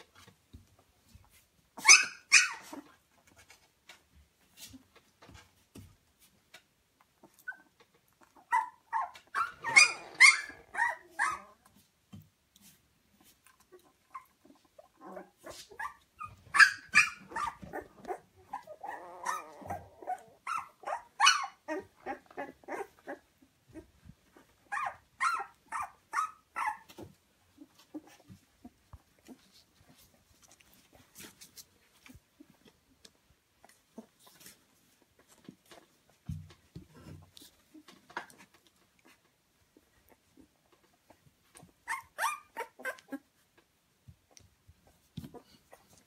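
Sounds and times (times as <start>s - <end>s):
puppies whimpering and squealing: 1.8s - 2.9s, 7.2s - 11.8s, 13.6s - 29.6s, 36.8s - 43.4s.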